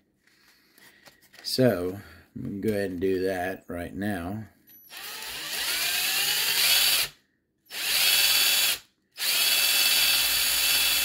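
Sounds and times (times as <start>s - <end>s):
cordless drill whining: 4.9s - 11.0s.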